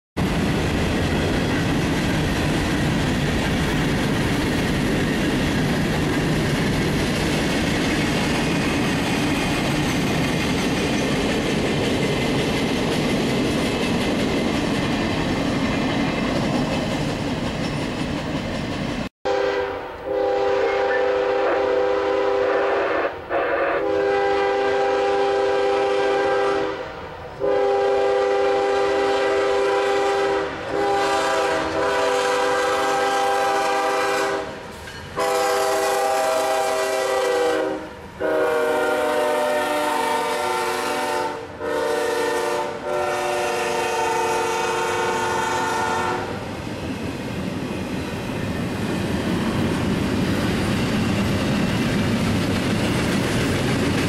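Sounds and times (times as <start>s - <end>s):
freight train rolling past: 0.2s - 54.0s
locomotive air horn: 19.3s - 46.4s.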